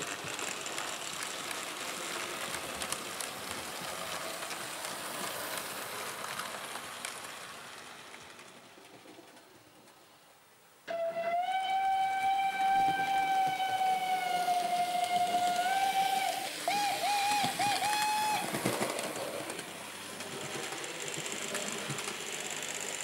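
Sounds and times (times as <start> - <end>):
steady steam hiss: 0.0 - 23.0
steam locomotive whistle: 10.9 - 18.5.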